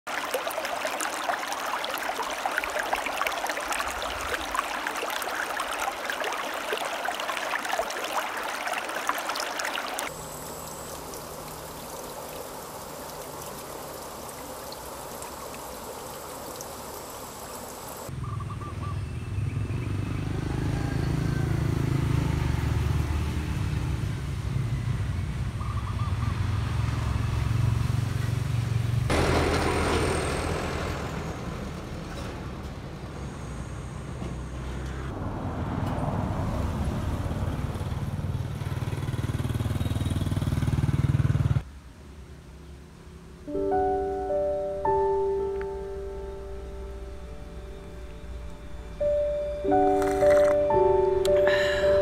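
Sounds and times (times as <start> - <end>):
water trickling over rocks: 0.1 - 18.1, 49.7 - 52.0.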